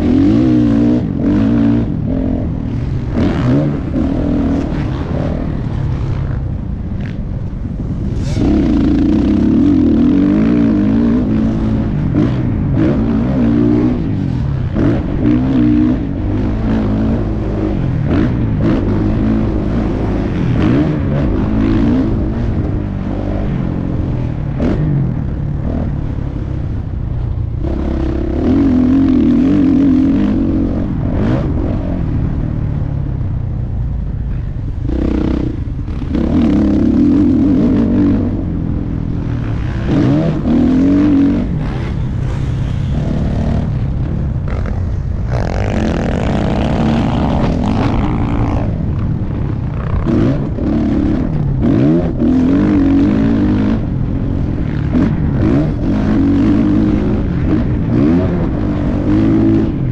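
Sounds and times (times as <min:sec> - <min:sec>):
dirt bike engine revving: 0:00.0 - 0:26.8, 0:27.5 - 0:32.4, 0:34.4 - 0:59.9
wind rushing over microphone: 0:00.0 - 0:59.9.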